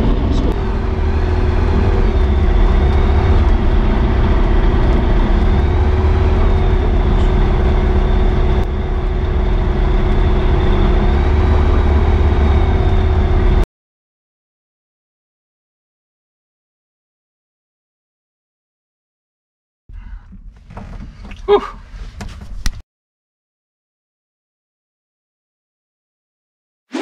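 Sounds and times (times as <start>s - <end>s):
light aircraft engine droning: 0.0s - 13.6s.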